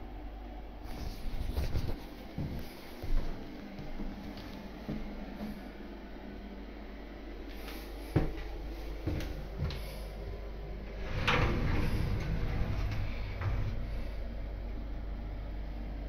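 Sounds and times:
scraping rattle with low rumble: 0:10.8 - 0:15.4.

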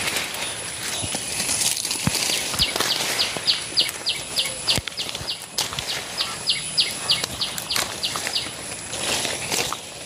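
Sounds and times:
vines crackling and snapping: 0:00.0 - 0:10.0
bird chirping: 0:02.2 - 0:08.8.

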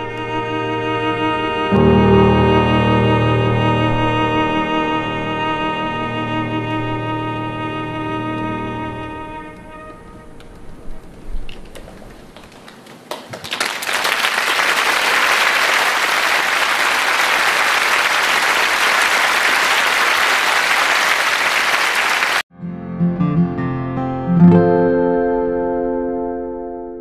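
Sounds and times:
audience applauding: 0:11.6 - 0:22.4.

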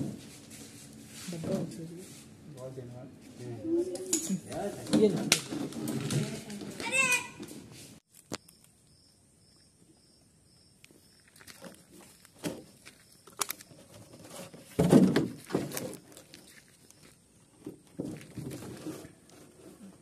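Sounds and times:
footsteps: 0:11.2 - 0:19.6.

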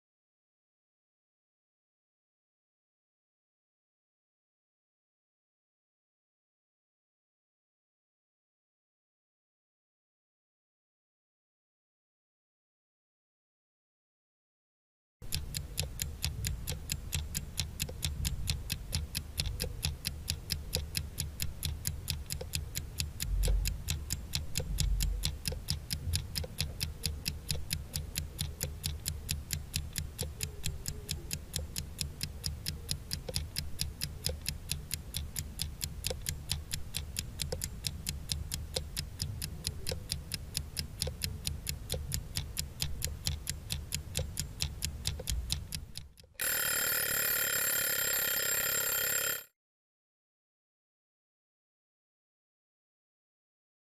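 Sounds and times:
clock ticking fast: 0:15.2 - 0:49.4.

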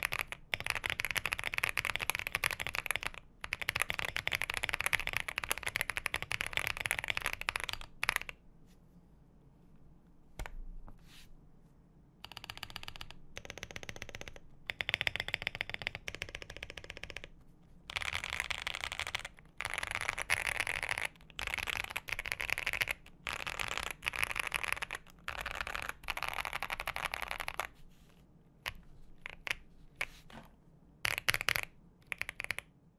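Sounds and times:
mechanical keyboard typing: 0:00.0 - 0:08.4, 0:12.2 - 0:17.3, 0:17.9 - 0:27.7, 0:31.1 - 0:32.7.

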